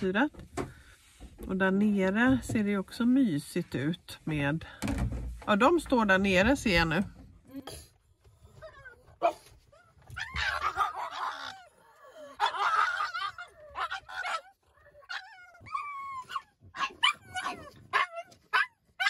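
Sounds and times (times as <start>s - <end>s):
dog whining and yelping: 8.4s - 19.0s.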